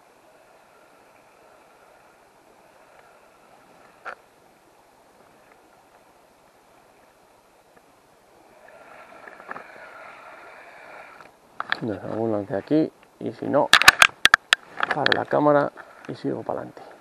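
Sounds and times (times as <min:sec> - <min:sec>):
river water running: 0:00.0 - 0:17.0
sharp clicks: 0:13.7 - 0:15.3.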